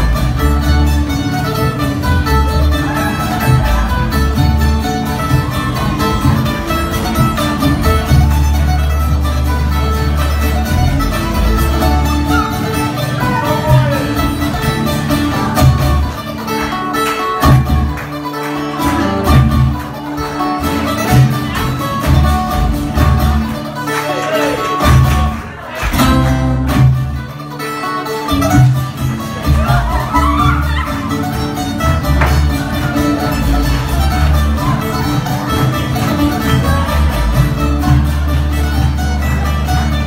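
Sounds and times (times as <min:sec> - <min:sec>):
acoustic guitar: 0:00.0 - 0:40.0
banjo: 0:00.0 - 0:40.0
double bass: 0:00.0 - 0:40.0
frame drum: 0:28.4 - 0:38.3.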